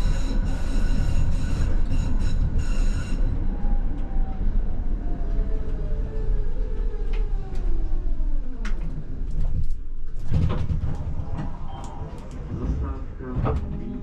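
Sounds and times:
tram motors whining: 0.0 - 10.0
tram doors opening with clatter: 0.0 - 14.0.

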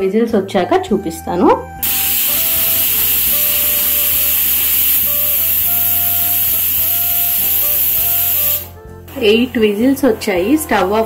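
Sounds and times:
pressure cooker whistle: 1.8 - 9.3.

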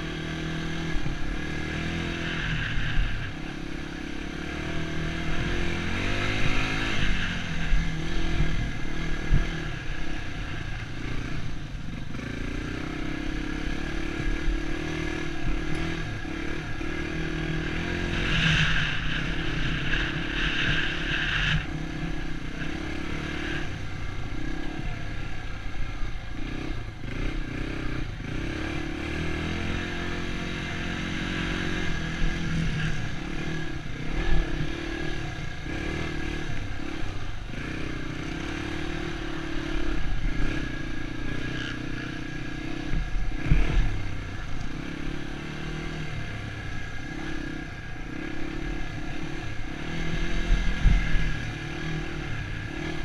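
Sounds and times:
dirt bike engine revving: 0.0 - 53.0.

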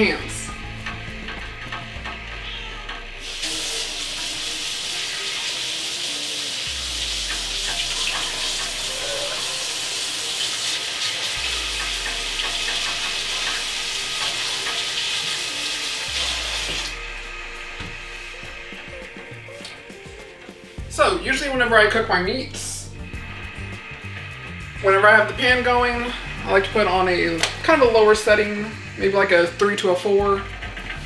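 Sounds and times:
tap water running and splashing: 0.0 - 21.0, 23.0 - 31.0.

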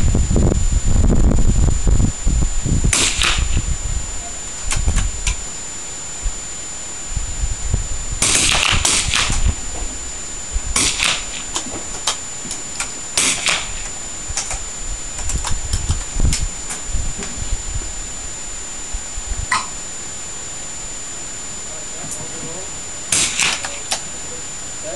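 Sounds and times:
rifle shots cracking: 2.9 - 3.6, 8.2 - 9.5, 10.8 - 14.6, 23.1 - 24.0.

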